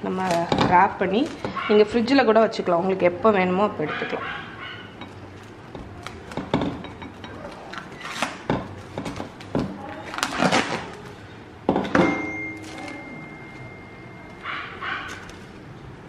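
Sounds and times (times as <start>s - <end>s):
cling wrap crinkling: 7.4s - 11.3s, 12.6s - 13.7s, 14.3s - 15.7s
ringing tone: 11.9s - 14.5s.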